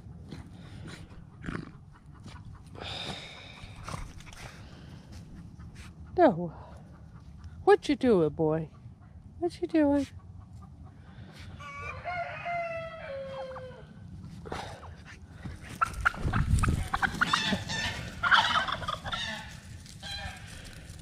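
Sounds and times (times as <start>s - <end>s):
turkeys gobbling: 10.2s - 13.9s, 15.6s - 20.8s
rustling: 15.5s - 21.0s.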